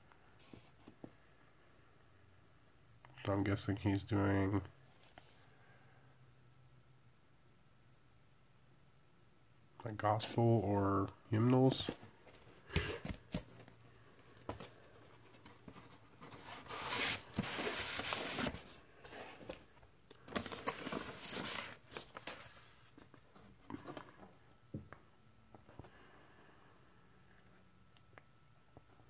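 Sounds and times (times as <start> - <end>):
paper and plastic rustling: 14.4 - 24.1.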